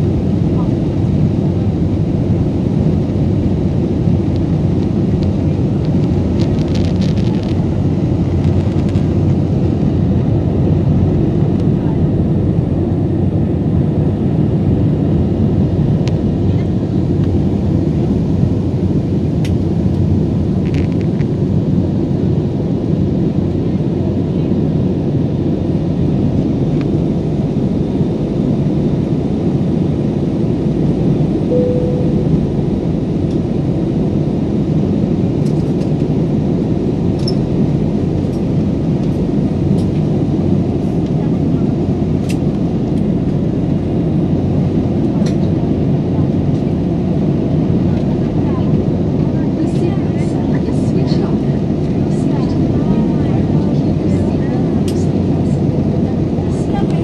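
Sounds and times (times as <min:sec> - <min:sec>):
jet engines and airflow rumble: 0:00.0 - 0:57.0
short faint tone: 0:31.5 - 0:32.9.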